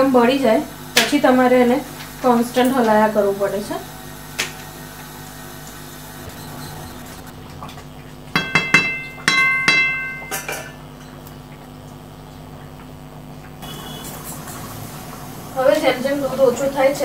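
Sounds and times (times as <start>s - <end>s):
metal utensil clanking on pan: 8.3s - 11.2s.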